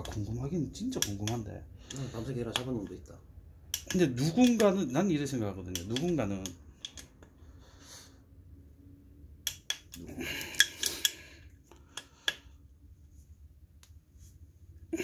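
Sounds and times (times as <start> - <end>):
torque wrench clicking: 3.7 - 4.6.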